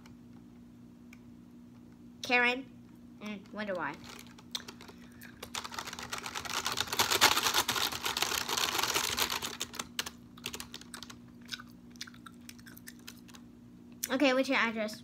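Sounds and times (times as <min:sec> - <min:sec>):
typing on computer keyboard: 0:05.5 - 0:11.2.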